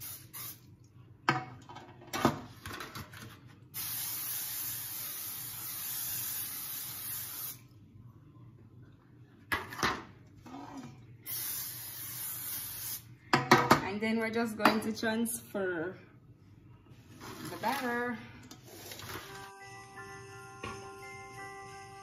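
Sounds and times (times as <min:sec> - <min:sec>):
aerosol cooking spray hissing: 0:00.0 - 0:00.6, 0:03.8 - 0:07.6, 0:11.3 - 0:13.1.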